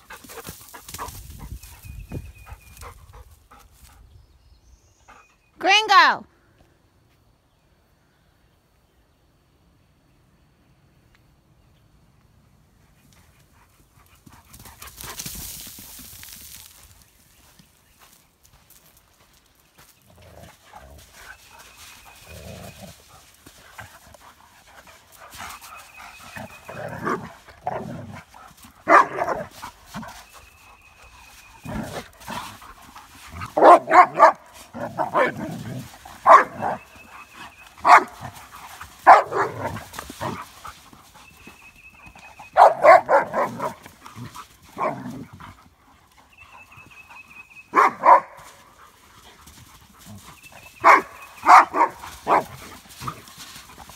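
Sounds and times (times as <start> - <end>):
dogs barking: 28.8 - 29.6, 33.4 - 36.9, 37.8 - 38.4, 39.0 - 40.4, 42.5 - 43.8, 44.7 - 45.2, 47.7 - 48.7, 50.8 - 53.2.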